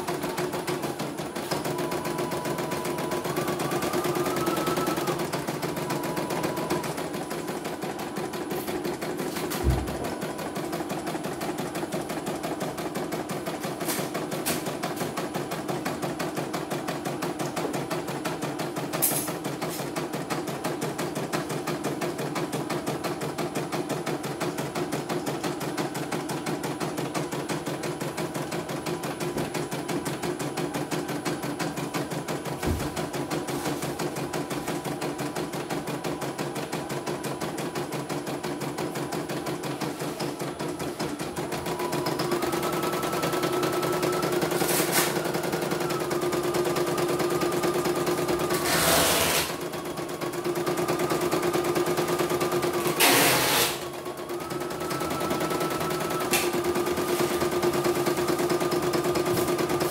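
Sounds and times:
embroidery machine stitching: 0:00.0 - 0:59.9
thump: 0:09.6 - 0:10.1, 0:32.6 - 0:33.0.

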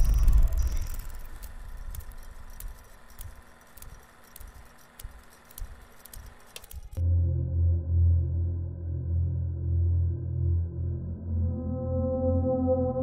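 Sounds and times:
film projector clicking: 0:00.0 - 0:07.0
projector low hum: 0:00.0 - 0:11.2.

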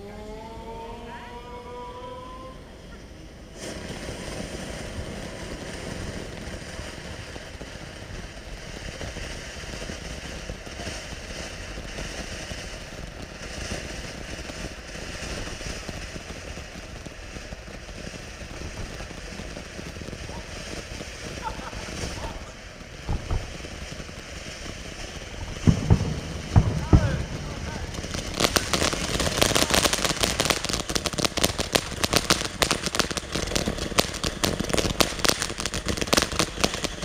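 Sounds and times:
rising tone: 0:00.0 - 0:02.8
firework fountain hissing: 0:01.7 - 0:37.0.

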